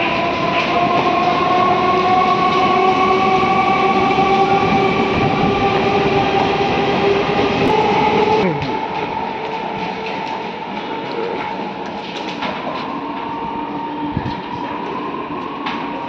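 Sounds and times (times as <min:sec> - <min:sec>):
train coaches rumbling: 0:00.0 - 0:16.0.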